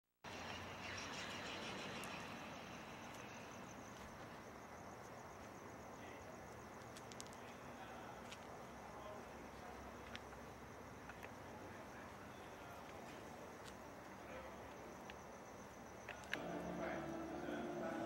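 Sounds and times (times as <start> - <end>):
high pulsing insect chirr: 0.3 - 18.0.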